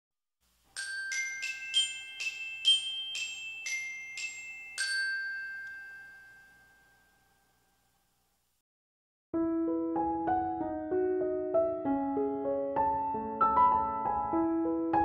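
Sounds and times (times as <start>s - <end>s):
bell-like chime jingle: 0.7s - 7.9s.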